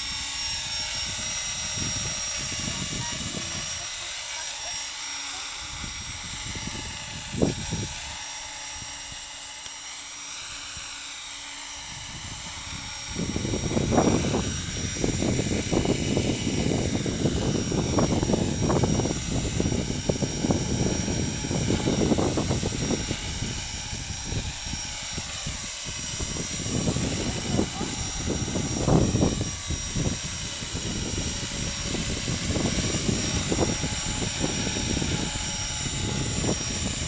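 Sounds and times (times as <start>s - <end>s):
wind buffeting microphone: 0.0s - 4.8s, 5.5s - 9.4s, 11.7s - 37.0s
model helicopter rotor whine: 0.0s - 37.0s.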